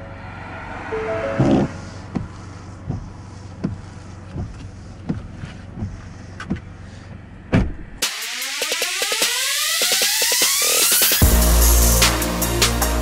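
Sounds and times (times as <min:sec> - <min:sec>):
electronic music with rising sweeps: 0:00.0 - 0:02.2, 0:08.0 - 0:13.0
low vehicle hum: 0:00.0 - 0:08.0
windshield wipers sweeping: 0:01.0 - 0:07.1
wiper blades knocking: 0:01.4 - 0:07.3.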